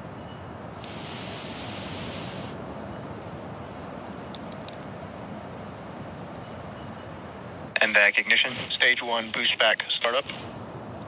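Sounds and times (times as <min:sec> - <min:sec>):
wind: 0:00.0 - 0:11.0
bright hiss: 0:00.8 - 0:02.6.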